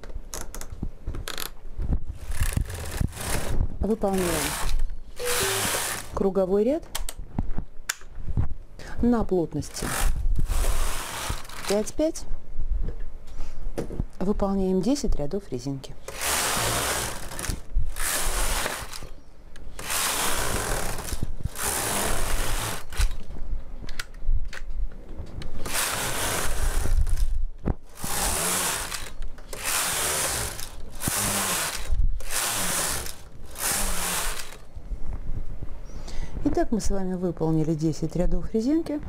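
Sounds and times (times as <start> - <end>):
knitting machine carriage sliding: 2.2 - 6.2, 9.7 - 12.0, 16.0 - 19.1, 19.7 - 23.2, 25.6 - 27.3, 27.9 - 34.6.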